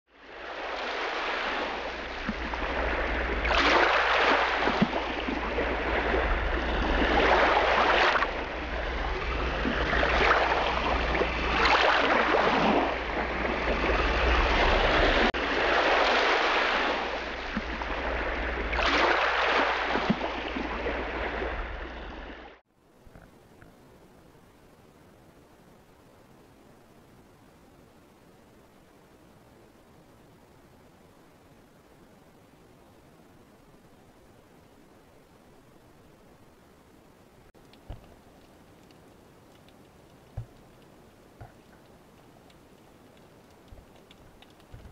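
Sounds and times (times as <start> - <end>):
waves washing in: 0.1 - 22.6
deep rumble: 4.8 - 15.4
faint hiss: 22.8 - 44.9.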